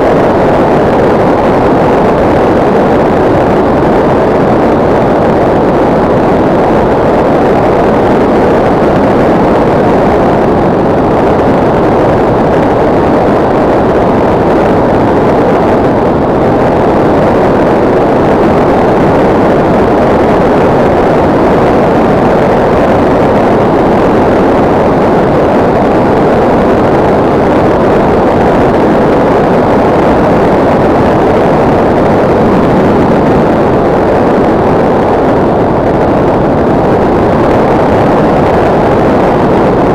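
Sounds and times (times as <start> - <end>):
model plane rushing noise: 0.0 - 39.9.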